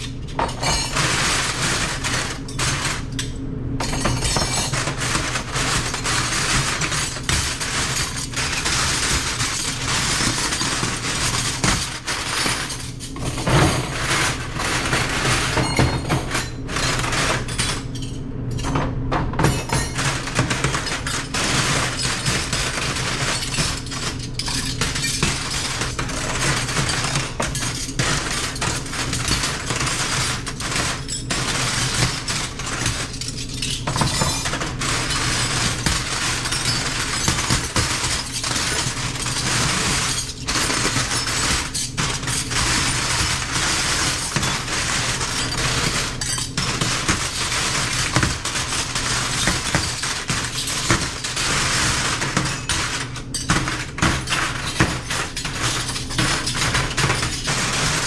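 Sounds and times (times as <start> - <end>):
metal cutlery clinking: 19.4 - 58.0.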